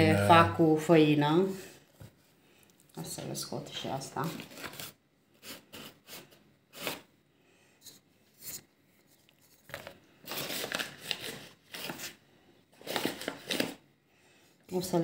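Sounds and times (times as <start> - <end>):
flour bag rustling and crinkling: 4.1 - 6.2, 9.4 - 12.2, 12.8 - 13.8.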